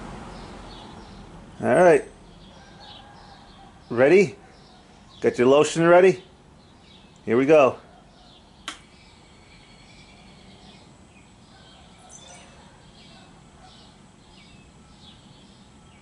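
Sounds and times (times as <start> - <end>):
ceiling fan hum: 0.0 - 16.0
birds chirping: 0.3 - 16.0
fan switch click: 8.6 - 8.8.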